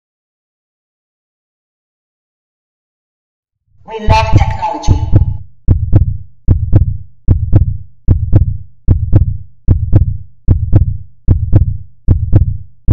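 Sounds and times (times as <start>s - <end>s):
heartbeat-like double thumps: 4.1s - 12.9s.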